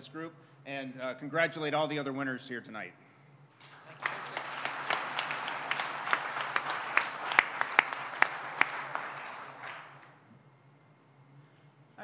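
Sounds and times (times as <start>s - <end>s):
audience applauding: 3.6s - 10.2s
sharp claps close by: 3.6s - 10.2s.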